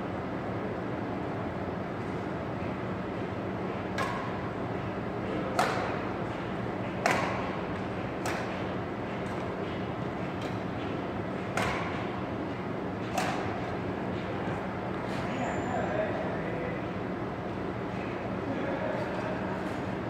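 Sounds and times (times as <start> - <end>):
rackets hitting shuttlecock: 3.9 - 4.4, 5.5 - 12.1, 13.0 - 13.6.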